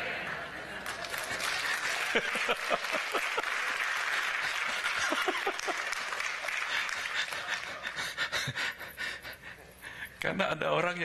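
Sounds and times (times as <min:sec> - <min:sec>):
congregation clapping: 0:00.8 - 0:08.2
bursts of laughter: 0:01.9 - 0:03.7, 0:04.8 - 0:06.0.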